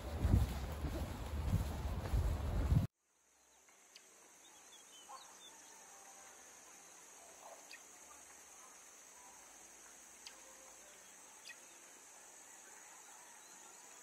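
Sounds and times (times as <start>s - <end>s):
wind rumble on microphone: 0.0s - 2.9s.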